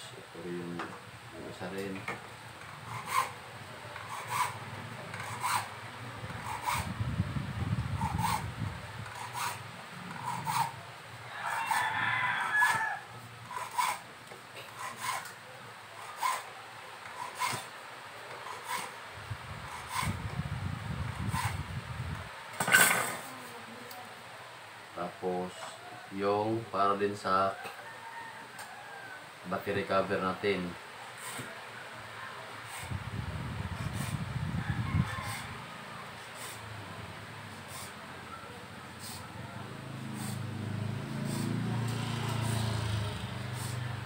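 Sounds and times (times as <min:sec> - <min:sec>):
hacksaw cutting plastic: 0:02.7 - 0:03.4, 0:04.0 - 0:05.7, 0:06.3 - 0:06.9, 0:08.0 - 0:08.5, 0:09.1 - 0:10.8, 0:13.5 - 0:14.0, 0:14.6 - 0:15.4, 0:16.0 - 0:16.5, 0:17.1 - 0:17.7, 0:18.3 - 0:19.0, 0:21.3 - 0:21.6, 0:41.2 - 0:43.8.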